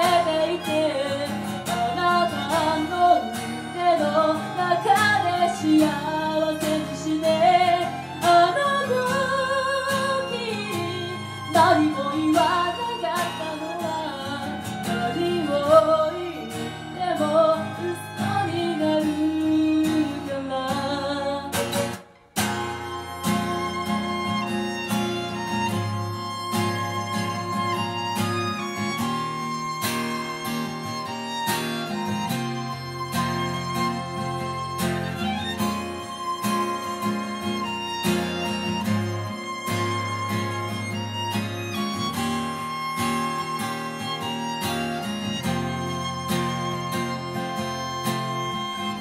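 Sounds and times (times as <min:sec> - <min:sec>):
woman singing: 0:00.0 - 0:22.0
acoustic guitar: 0:00.0 - 0:49.0
violin: 0:00.0 - 0:49.0.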